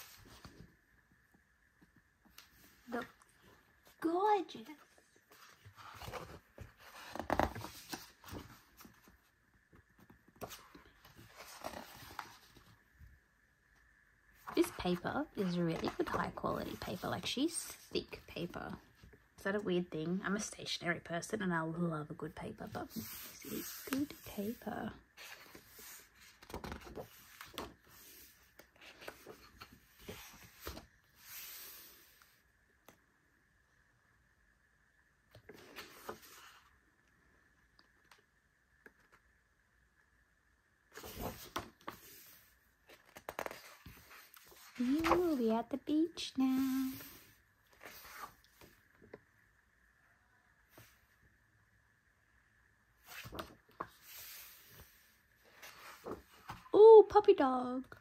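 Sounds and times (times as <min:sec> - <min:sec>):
book pages turning: 0:04.7 - 0:09.2, 0:09.8 - 0:12.8, 0:14.4 - 0:17.5, 0:22.8 - 0:32.4, 0:35.3 - 0:36.7, 0:40.9 - 0:45.8, 0:46.5 - 0:49.1, 0:53.0 - 0:56.8
page turning swish: 0:53.0 - 0:54.9.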